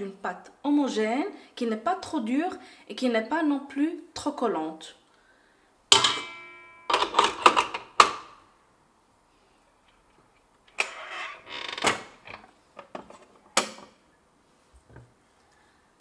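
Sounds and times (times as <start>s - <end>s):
metal bowl ringing: 5.9s - 7.2s
mixer parts clicking and clattering: 5.9s - 8.3s.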